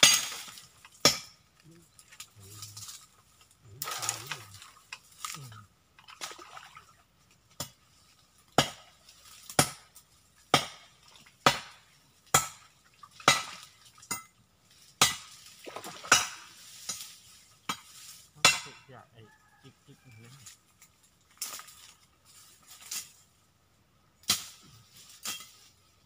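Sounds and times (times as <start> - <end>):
machete chopping branches: 0.0 - 1.4, 8.4 - 18.9, 20.5 - 23.2, 24.2 - 25.8.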